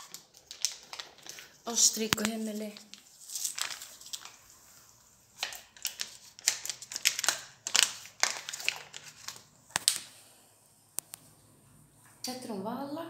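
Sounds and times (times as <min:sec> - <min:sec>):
cats crunching dry kibble: 0:00.0 - 0:04.5, 0:05.4 - 0:10.0.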